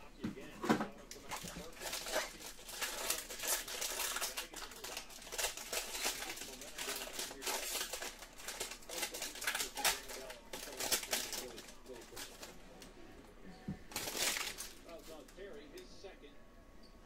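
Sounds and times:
foil wrapper crinkling: 1.1s - 12.6s, 13.9s - 15.5s.

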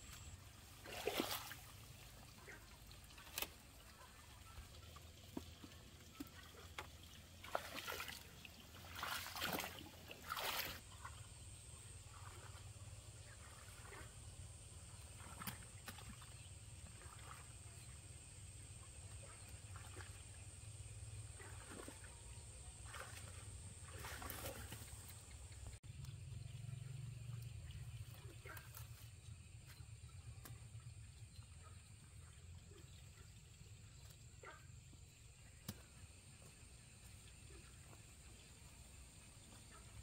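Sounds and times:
quiet rural background: 0.0s - 40.0s
leaves and vines rustling: 22.9s - 25.3s.

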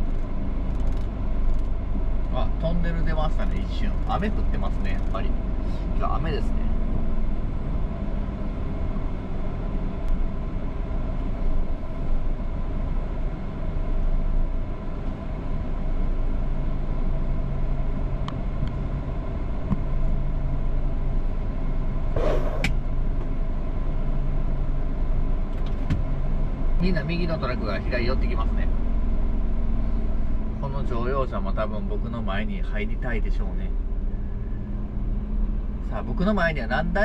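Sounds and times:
short hiss: 22.2s - 22.8s.

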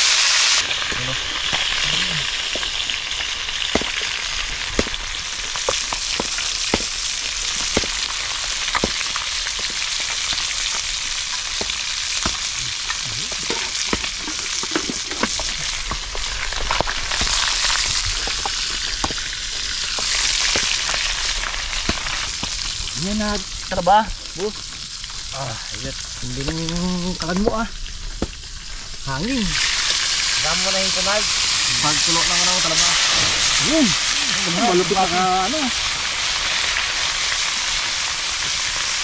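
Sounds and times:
fish sizzling in hot oil: 0.0s - 39.0s
spatula scraping a pan: 5.6s - 16.0s.

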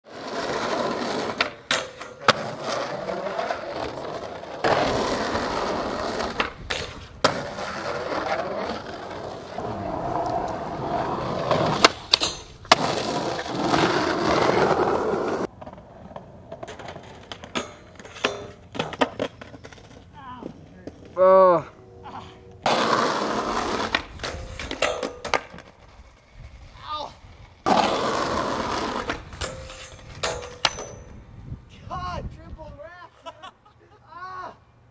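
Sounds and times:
skateboard wheels rolling on concrete: 0.0s - 21.6s, 22.6s - 33.6s
skateboard clacking on ground: 0.3s - 21.2s, 22.6s - 26.3s, 27.6s - 31.2s.

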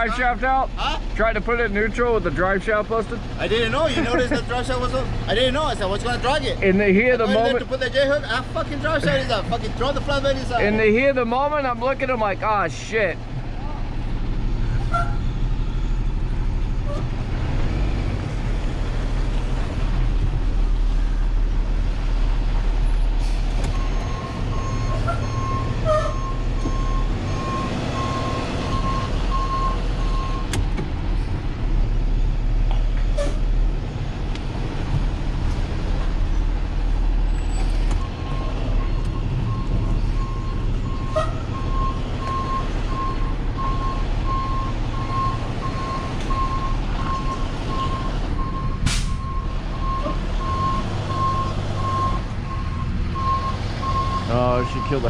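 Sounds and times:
truck engine running: 0.0s - 55.0s
reversing alarm beeping: 23.8s - 30.5s, 38.0s - 55.0s.

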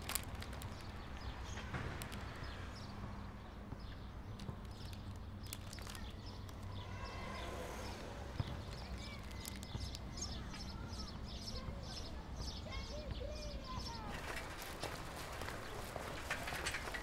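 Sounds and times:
small birds chirping: 0.0s - 17.0s
steady low street hum: 0.0s - 17.0s.

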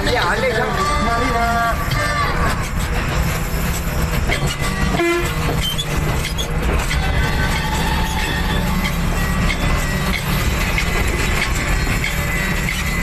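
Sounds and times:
diesel engine running loudly: 0.0s - 13.0s
short horn toot: 4.9s - 5.4s.

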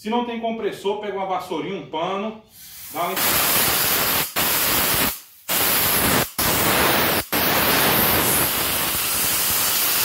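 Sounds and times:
air blow gun hissing: 2.5s - 10.0s.

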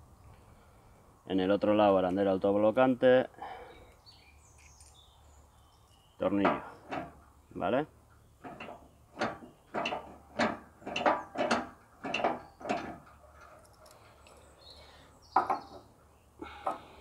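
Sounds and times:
bolt and washers knocking and clinking: 8.4s - 14.0s.

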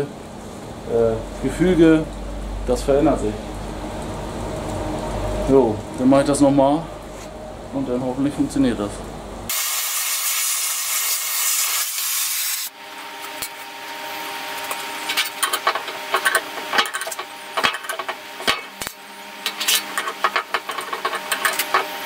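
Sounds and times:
steady low hum: 0.0s - 9.5s, 12.7s - 22.0s
compressed air hissing: 9.5s - 12.7s.

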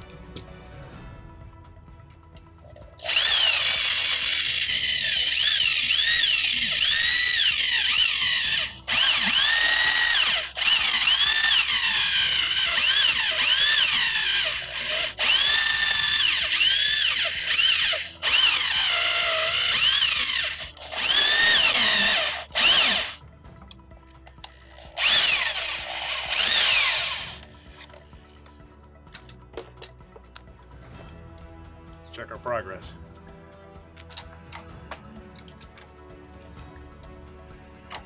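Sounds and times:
cordless drill whining: 3.0s - 23.2s, 24.5s - 27.9s.

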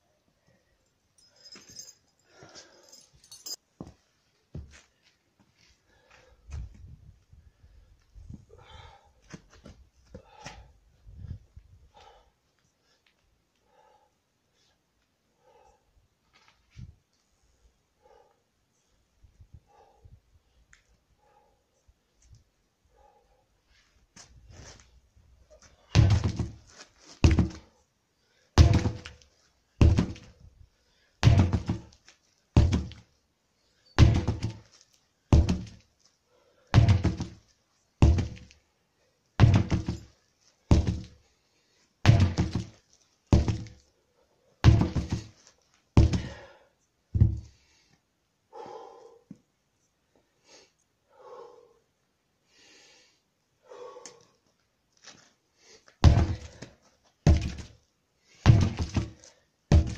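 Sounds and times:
sledgehammer thudding on tyres: 25.8s - 27.7s, 28.6s - 30.4s, 31.2s - 32.0s, 32.6s - 33.0s, 34.0s - 34.7s, 35.3s - 35.8s, 36.7s - 37.4s, 38.0s - 38.6s, 39.4s - 41.2s, 42.0s - 43.8s, 44.6s - 45.4s, 46.0s - 46.5s, 47.2s - 47.6s, 56.0s - 57.8s, 58.4s - 59.9s.

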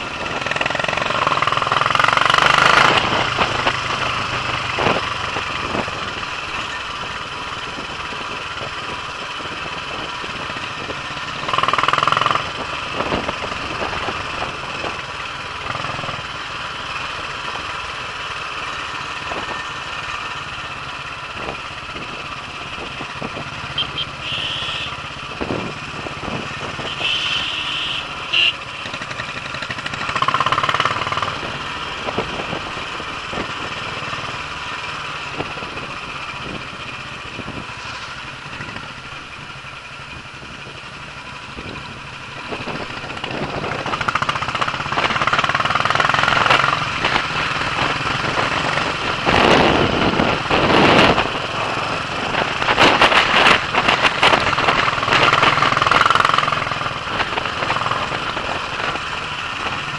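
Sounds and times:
motorcycle engine running: 0.0s - 59.9s
loud high-pitched blasts: 23.7s - 25.0s.

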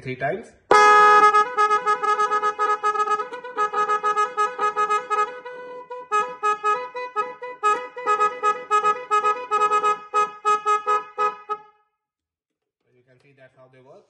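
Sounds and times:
musical car horn tune: 0.7s - 11.9s.

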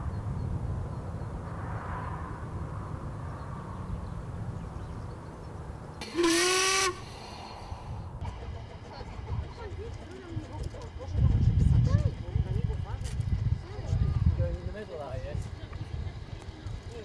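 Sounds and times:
steam locomotive whistle blast: 6.0s - 7.6s
low outdoor rumble: 6.8s - 17.0s.

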